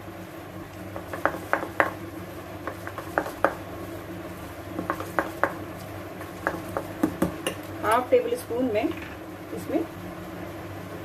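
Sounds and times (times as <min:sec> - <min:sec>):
spoon stirring batter in steel bowl: 0:04.8 - 0:05.6, 0:06.2 - 0:07.6.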